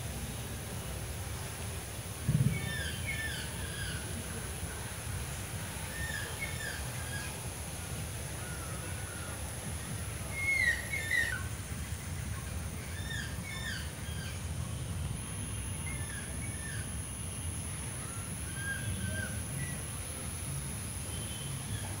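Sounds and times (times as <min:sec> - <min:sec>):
birds chirping and whistling: 0:10.4 - 0:11.5.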